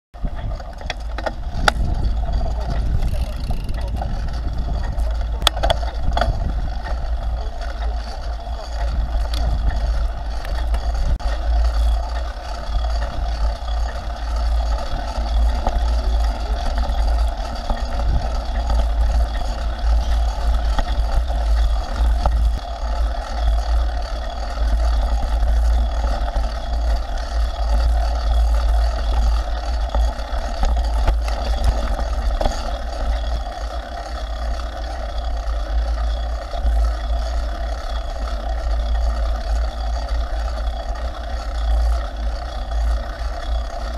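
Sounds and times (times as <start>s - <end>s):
wind on microphone: 0.2s - 33.5s
bike rattling over bumps: 0.2s - 43.9s
tyres rolling on gravel: 0.2s - 43.9s.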